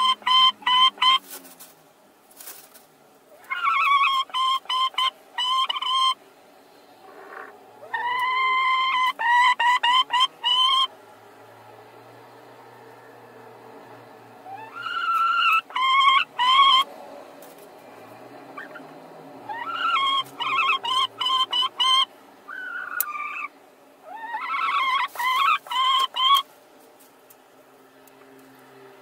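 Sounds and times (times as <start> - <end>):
hens squawking: 0.0 - 1.4, 3.3 - 6.2, 7.0 - 10.9, 14.4 - 16.9, 18.5 - 26.5.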